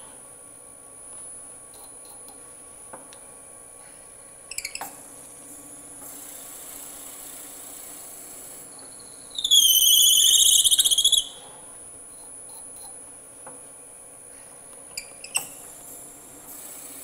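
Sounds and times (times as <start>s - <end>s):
drill bit screeching in wood: 9.4s - 11.3s.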